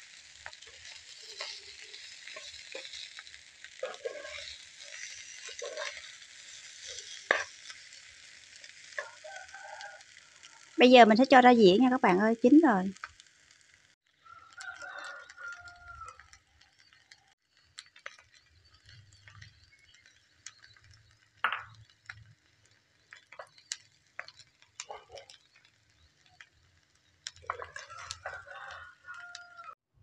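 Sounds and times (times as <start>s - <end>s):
metal spatula scraping frying pan: 0.2s - 9.2s, 27.3s - 29.7s
rooster crowing: 9.0s - 10.8s, 14.2s - 16.2s, 27.5s - 29.8s.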